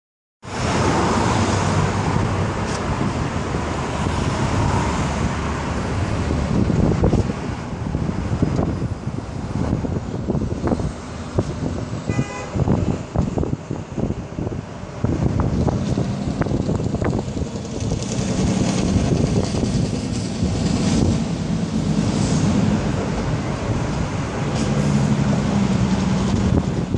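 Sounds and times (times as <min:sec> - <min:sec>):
highway traffic noise: 0:00.4 - 0:26.9
wind buffeting microphone: 0:00.6 - 0:26.9.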